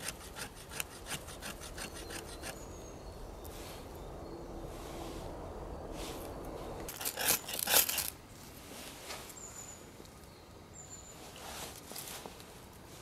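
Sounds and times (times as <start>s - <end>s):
knife scraping ferro rod: 0.0s - 2.6s, 6.9s - 8.1s.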